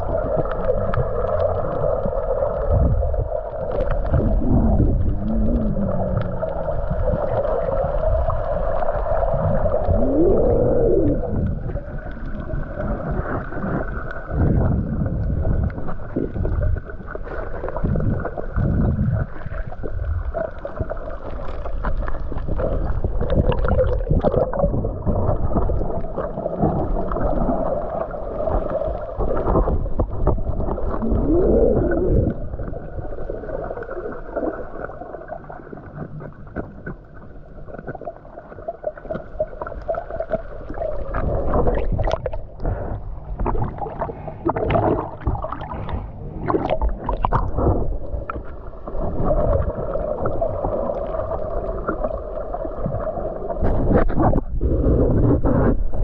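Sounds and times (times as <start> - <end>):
low rumbles: 0.0 - 33.8
muffled water churning and gurgling: 0.0 - 56.0.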